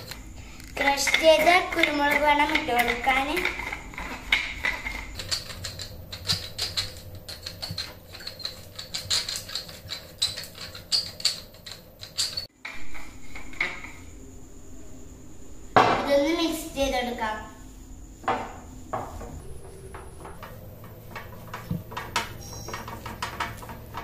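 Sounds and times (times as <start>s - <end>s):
faint high whine: 12.6s - 23.7s.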